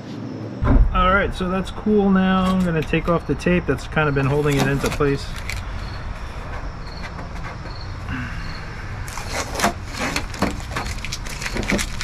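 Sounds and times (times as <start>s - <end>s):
tape peeling off plastic: 4.2s - 5.8s, 9.0s - 12.0s.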